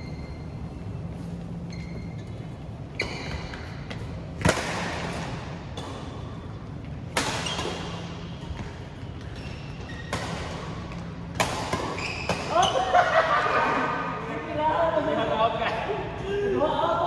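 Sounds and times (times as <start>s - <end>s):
racket hitting shuttlecock: 4.4s - 6.2s, 7.0s - 9.4s, 10.0s - 12.6s.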